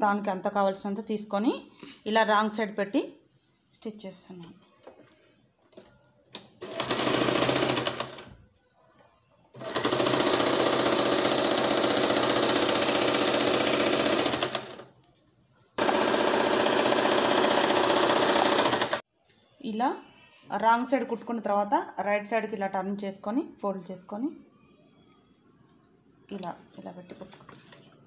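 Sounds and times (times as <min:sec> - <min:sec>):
sewing machine running: 0:06.6 - 0:08.3, 0:09.6 - 0:14.9, 0:15.8 - 0:19.0.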